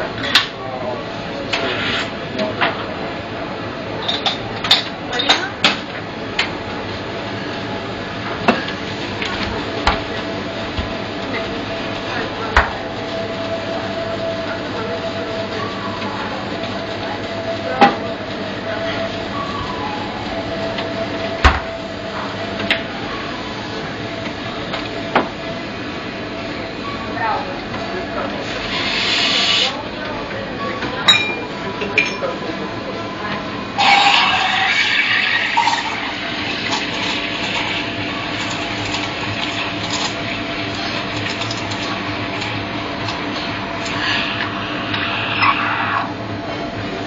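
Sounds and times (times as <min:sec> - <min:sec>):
steady hum: 0:00.0 - 0:47.0
steam wand hissing into milk: 0:28.5 - 0:29.8, 0:43.8 - 0:46.1.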